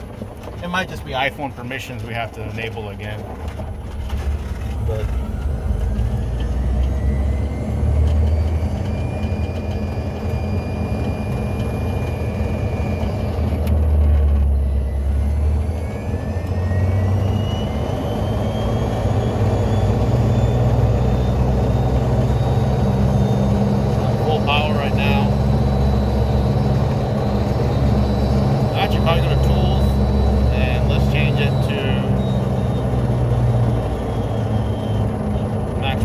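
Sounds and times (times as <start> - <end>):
tyres and wind rumble: 0.0 - 9.8
electric drivetrain whine: 0.0 - 36.0.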